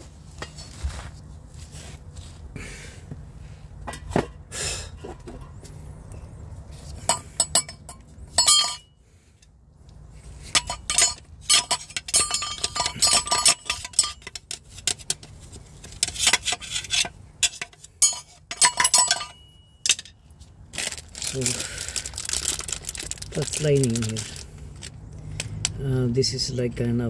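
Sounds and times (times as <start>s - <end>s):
metal clinking and rattling: 7.0s - 8.9s, 10.5s - 15.3s, 15.9s - 20.2s.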